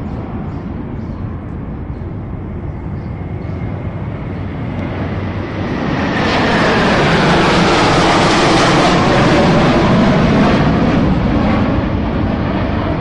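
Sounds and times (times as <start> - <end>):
jet engine rumble and whine: 0.0 - 13.0.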